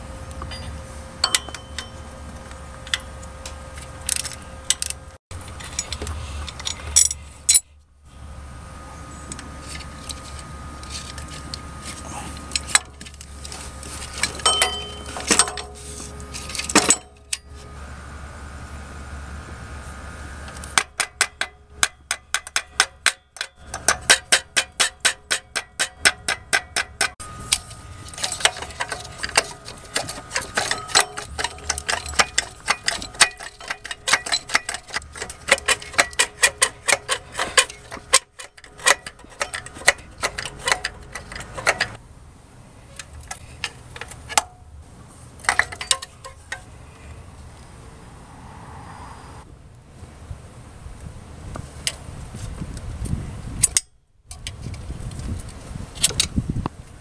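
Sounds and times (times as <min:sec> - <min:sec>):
metal tools clinking: 0:00.4 - 0:07.7, 0:09.7 - 0:17.6, 0:20.9 - 0:42.0, 0:45.4 - 0:46.7
ratchet clicking: 0:20.8 - 0:42.0.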